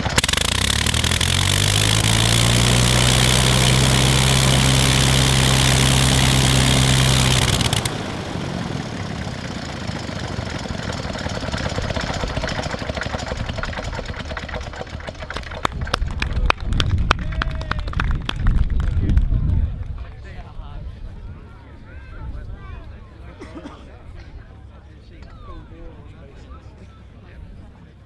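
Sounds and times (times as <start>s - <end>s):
rotary engine running: 0.0s - 16.3s
engine and propeller coasting down: 0.0s - 20.7s.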